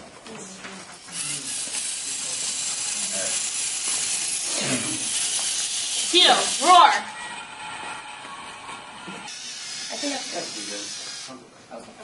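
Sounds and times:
robot motors whirring: 1.0 - 11.4.

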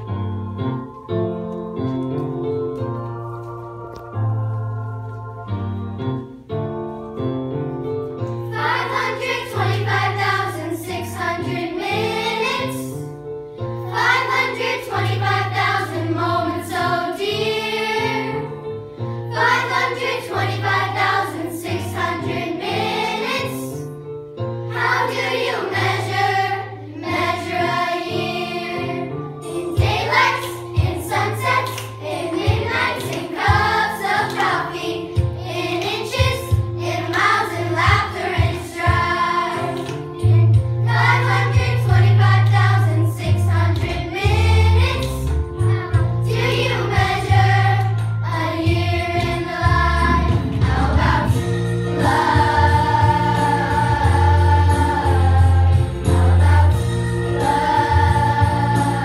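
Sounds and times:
keyboard accompaniment: 0.0 - 59.0
children singing in chorus: 52.0 - 59.0.

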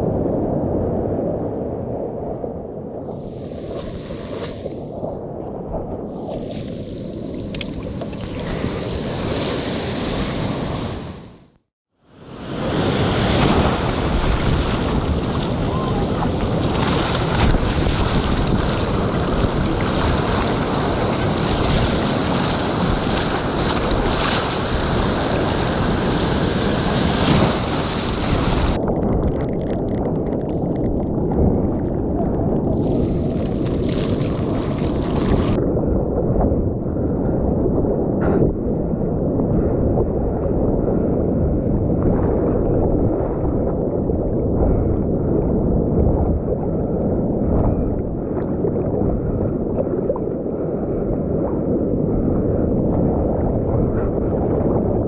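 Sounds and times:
dull low wash of water: 0.0 - 55.0
surf rushing with spray hiss: 3.2 - 4.8, 6.3 - 11.3, 12.2 - 28.8.

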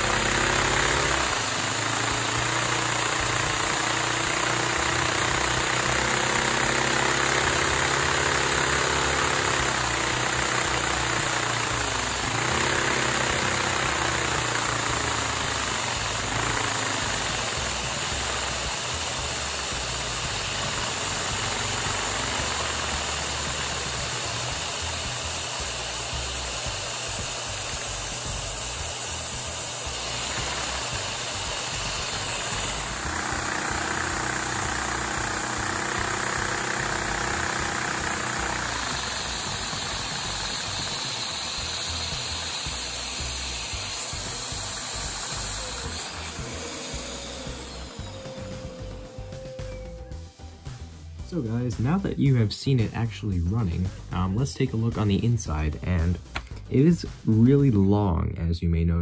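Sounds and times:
plastic pistons clattering: 0.0 - 27.9
vacuum motor hissing: 0.0 - 52.0.

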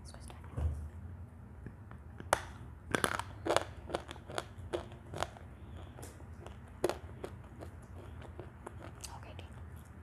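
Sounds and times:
dry clay crunching in mouth: 2.2 - 9.2.

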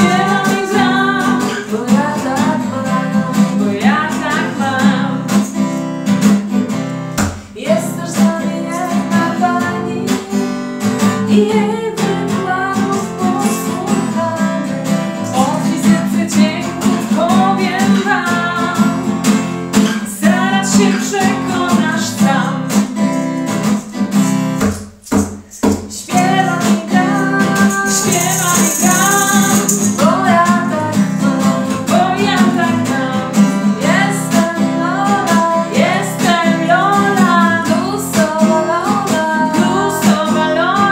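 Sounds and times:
women singing: 0.0 - 5.6, 7.6 - 19.2, 19.8 - 22.8, 25.9 - 40.9
acoustic guitar strumming: 0.0 - 40.9.

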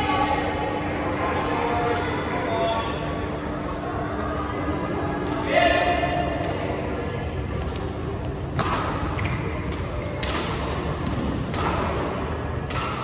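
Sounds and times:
rackets hitting shuttlecock: 7.5 - 13.0.

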